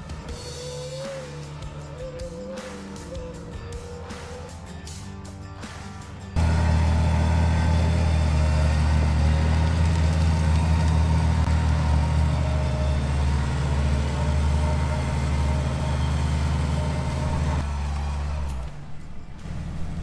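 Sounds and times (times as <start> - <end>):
vehicle engine idling: 6.3 - 20.0.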